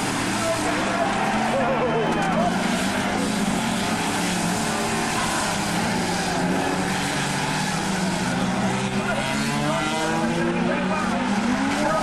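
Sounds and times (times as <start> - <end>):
racing car engines accelerating: 0.0 - 12.0.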